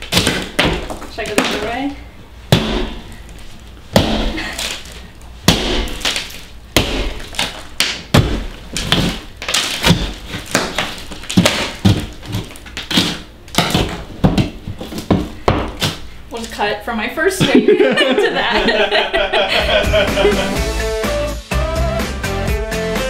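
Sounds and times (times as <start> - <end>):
gypsum board crunching: 0.0 - 1.8, 2.5 - 16.7
hammer striking drywall: 2.5 - 3.0, 4.0 - 4.8, 5.5 - 16.0.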